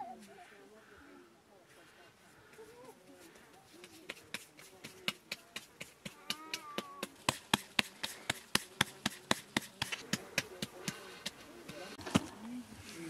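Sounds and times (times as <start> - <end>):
hands slapping bread dough: 3.3 - 11.9.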